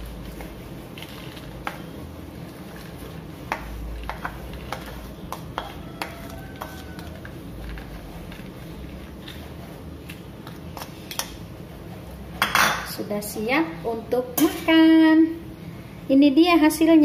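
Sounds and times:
spatula scraping glass plate: 2.6s - 10.2s.

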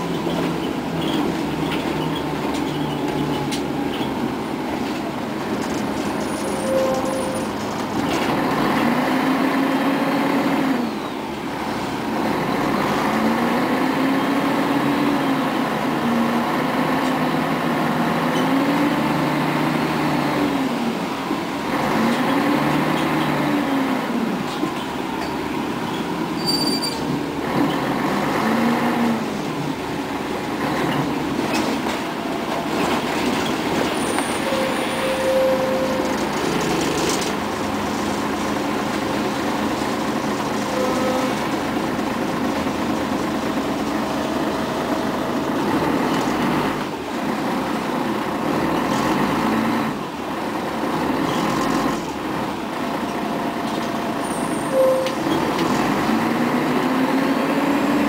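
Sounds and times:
bus diesel engine running: 0.0s - 58.0s
brief tone: 6.4s - 7.5s, 34.3s - 36.1s, 40.7s - 41.3s, 54.3s - 55.4s.

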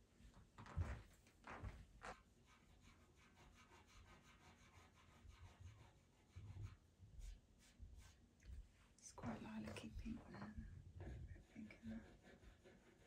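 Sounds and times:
pencil scratching on paper: 2.1s - 8.2s, 10.9s - 13.0s.

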